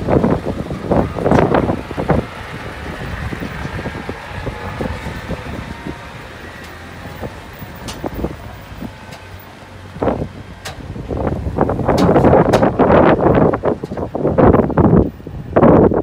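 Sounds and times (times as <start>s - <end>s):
diesel engine idling: 0.0s - 16.0s
wind buffeting microphone: 0.0s - 16.0s.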